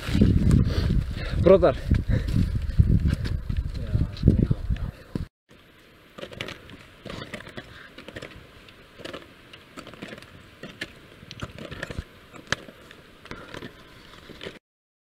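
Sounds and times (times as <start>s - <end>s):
trekking poles tapping: 6.2s - 13.8s.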